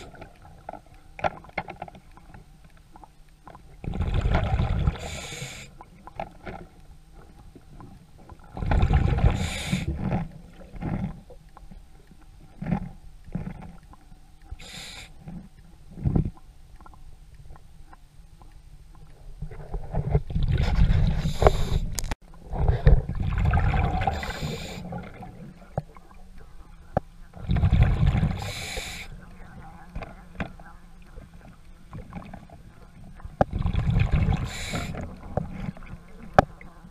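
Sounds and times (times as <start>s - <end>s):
faint clicks and knocks: 0.0s - 3.8s, 5.8s - 8.5s, 10.0s - 14.6s, 15.2s - 23.1s, 25.4s - 27.3s, 34.9s - 36.9s
exhaled bubbles rushing: 3.7s - 5.6s, 8.4s - 11.2s, 19.7s - 21.8s, 22.4s - 26.3s, 27.3s - 36.9s
diver breathing through regulator: 4.7s - 5.8s, 9.2s - 10.2s, 14.5s - 15.3s, 20.6s - 22.0s, 24.0s - 25.1s, 27.7s - 29.2s, 33.8s - 35.2s.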